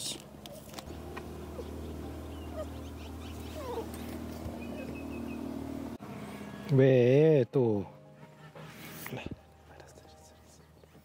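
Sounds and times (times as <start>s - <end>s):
steady low hum: 0.0s - 6.7s
dog whimpering: 1.5s - 5.4s.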